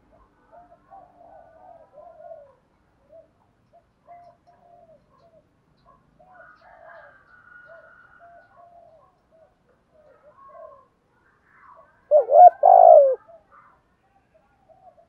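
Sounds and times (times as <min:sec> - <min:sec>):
dove cooing: 0:00.5 - 0:03.4, 0:12.1 - 0:13.2.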